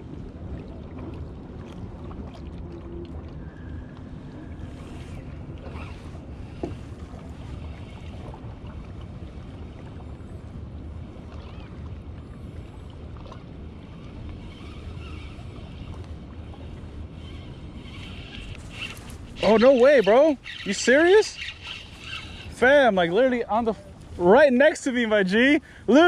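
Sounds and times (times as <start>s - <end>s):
water lapping on rocky shore: 11.0s - 26.0s.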